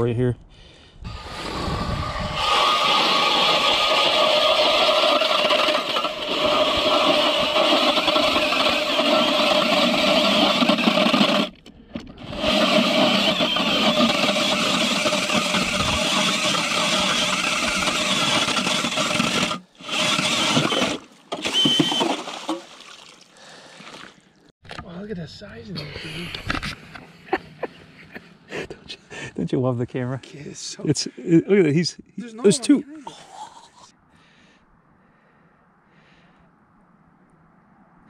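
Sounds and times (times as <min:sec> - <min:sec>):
cordless drill motor whine: 0:01.1 - 0:22.1
auger blades grinding ice: 0:01.1 - 0:22.7.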